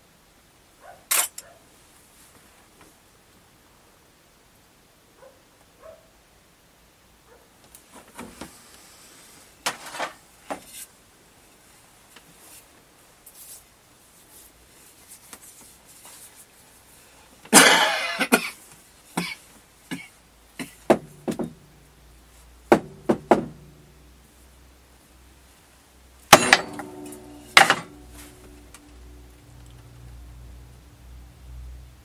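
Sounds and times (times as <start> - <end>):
man coughing loudly: 17.5 - 18.6
hand tool knocking and tapping: 20.9 - 21.6, 22.7 - 23.8, 26.3 - 28.1.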